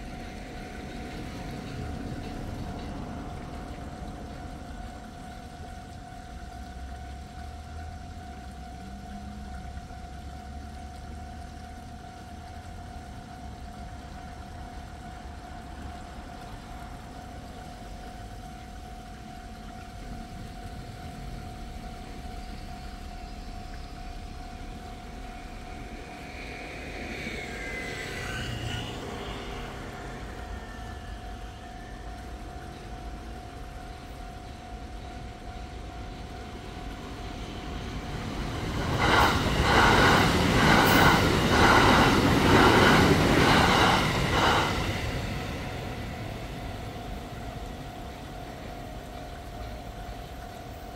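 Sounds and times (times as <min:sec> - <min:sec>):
train wheels clacking: 0:37.2 - 0:47.8.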